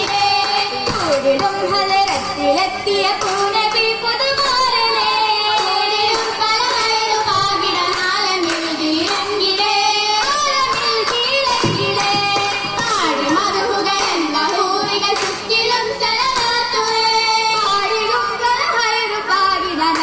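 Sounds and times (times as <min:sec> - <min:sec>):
hand claps: 0:00.0 - 0:02.4, 0:03.1 - 0:04.6, 0:05.5 - 0:16.8
girls singing together: 0:00.0 - 0:20.0.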